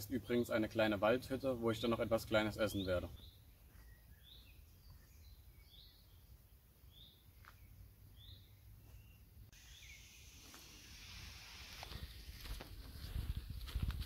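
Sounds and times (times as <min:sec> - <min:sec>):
small bird high chirp: 0:06.9 - 0:10.2
steady background hiss: 0:09.5 - 0:13.0.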